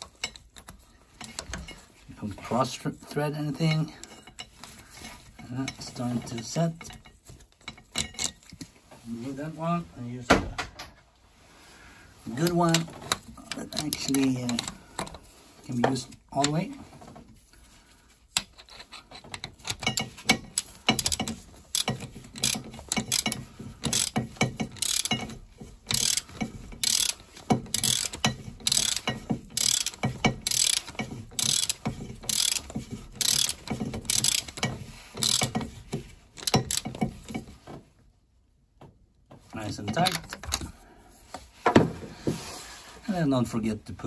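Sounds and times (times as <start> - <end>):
ratchet wrench clicking: 18.4 - 35.8, 36.4 - 37.1.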